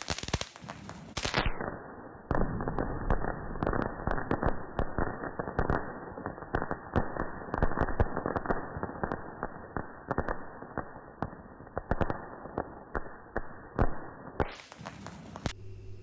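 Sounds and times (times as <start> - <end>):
firework spraying sparks hissing: 0.0 - 1.6, 14.4 - 15.6
firework crackling pops: 0.0 - 15.6.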